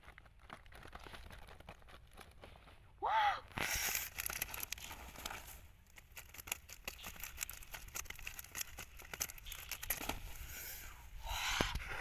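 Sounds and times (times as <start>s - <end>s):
crackling and tapping of wicker: 0.0s - 2.8s, 3.5s - 10.3s
fish and leaf rustling: 3.6s - 10.8s.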